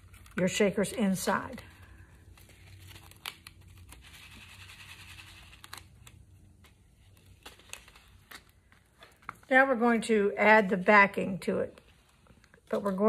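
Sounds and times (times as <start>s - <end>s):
plastic sheet crinkling: 0.0s - 9.5s.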